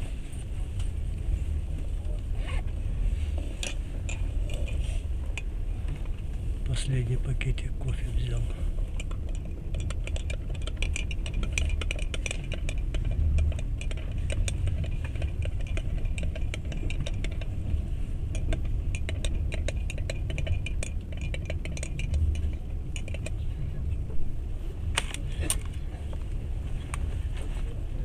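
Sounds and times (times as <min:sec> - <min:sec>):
light rattling and clinking: 0:00.0 - 0:28.0
train carriage rumble: 0:00.0 - 0:28.0.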